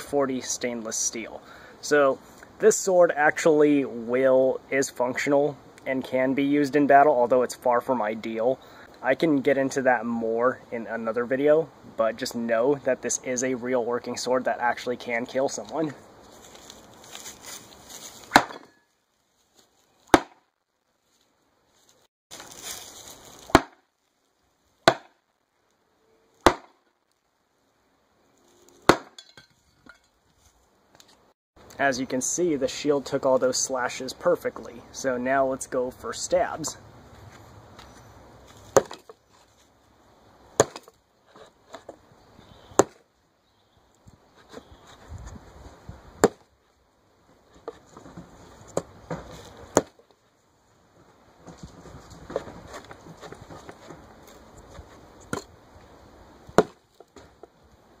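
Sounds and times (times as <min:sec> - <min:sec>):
sword chopping into wood: 0:18.3 - 0:18.8, 0:20.1 - 0:20.4, 0:23.4 - 0:23.8, 0:24.8 - 0:25.2, 0:26.4 - 0:26.8, 0:28.8 - 0:29.4, 0:38.7 - 0:39.1, 0:40.6 - 0:40.9, 0:42.8 - 0:43.0, 0:46.2 - 0:46.4, 0:48.8 - 0:50.0, 0:56.6 - 0:57.3.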